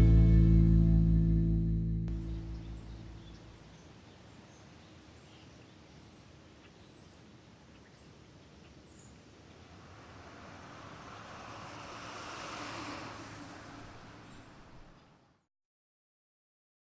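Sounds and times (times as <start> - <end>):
low song notes: 0.0 - 3.5
bird chirps: 2.1 - 7.1
faint outdoor background noise: 2.1 - 15.5.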